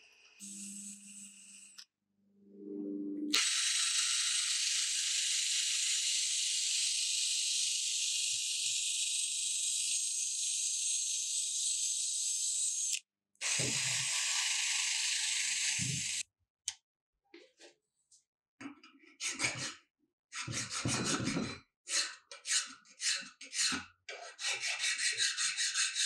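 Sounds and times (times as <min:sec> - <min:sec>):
drill motor hum: 0:00.4 - 0:01.8.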